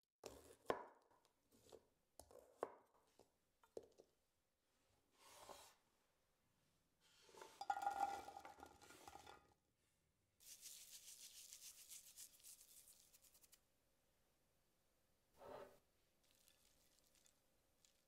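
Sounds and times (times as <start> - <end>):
salt sprinkling hiss: 10.4 - 13.6.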